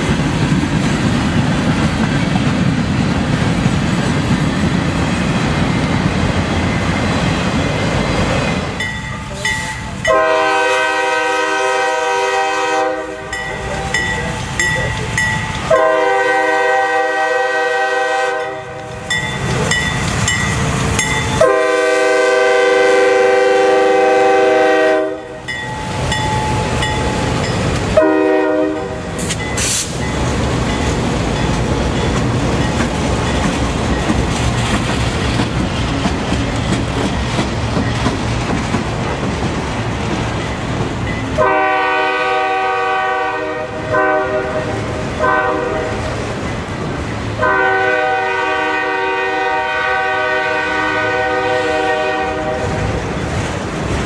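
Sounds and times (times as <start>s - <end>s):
train cars rumbling and clattering: 0.0s - 54.0s
locomotive air horn: 10.0s - 13.4s, 15.7s - 18.8s, 21.4s - 25.4s, 28.0s - 30.0s, 41.4s - 46.1s, 47.4s - 52.8s.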